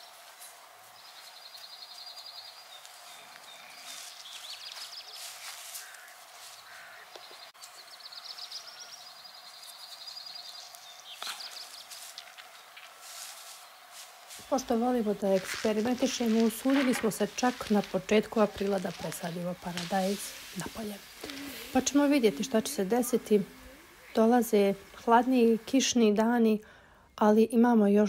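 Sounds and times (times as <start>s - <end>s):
bird chirps and sweeping calls: 1.0s - 12.1s, 14.4s - 25.7s
songbird trills: 1.0s - 12.7s, 15.8s - 26.0s.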